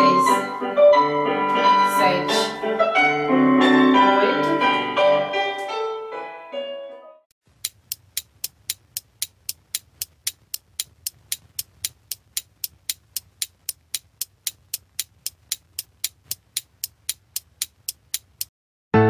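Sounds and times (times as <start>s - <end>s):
clock ticking: 7.5s - 18.5s.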